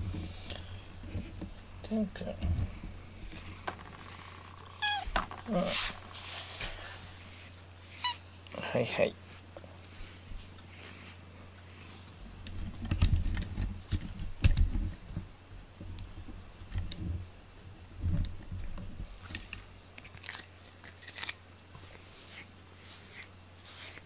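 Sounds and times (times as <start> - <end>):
handling knocks and rubbing: 0.0 - 7.0.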